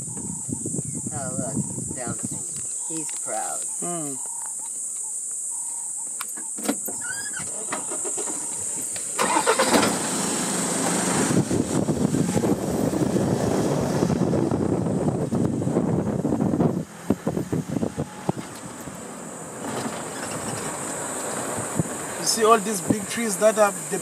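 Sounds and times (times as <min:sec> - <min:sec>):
bird chirp: 0:00.0 - 0:09.0
shrill insect chorus: 0:00.0 - 0:11.8, 0:18.4 - 0:24.0
vehicle engine starting and running: 0:07.4 - 0:24.0.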